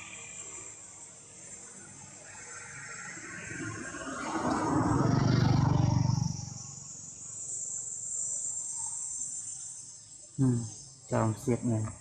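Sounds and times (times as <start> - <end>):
high-pitched insect drone: 0.0 - 12.0.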